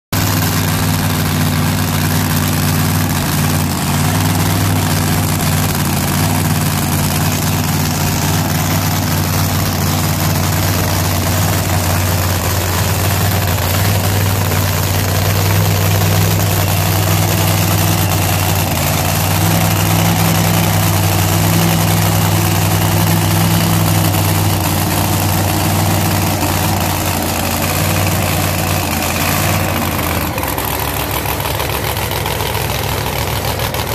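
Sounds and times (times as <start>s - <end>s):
drag car engine idling: 0.1s - 33.9s.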